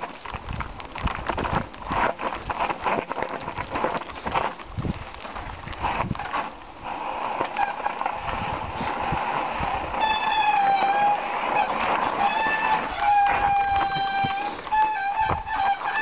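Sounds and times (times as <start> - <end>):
bike rattling on rocky trail: 0.0 - 16.0
bike brakes squealing: 9.9 - 16.0.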